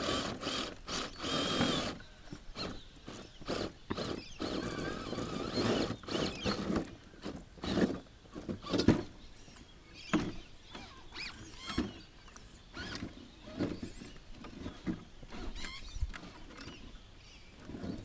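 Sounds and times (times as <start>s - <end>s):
electric motor whining: 0.0s - 2.0s, 2.6s - 6.8s
wheels scrabbling on rock: 0.0s - 18.0s.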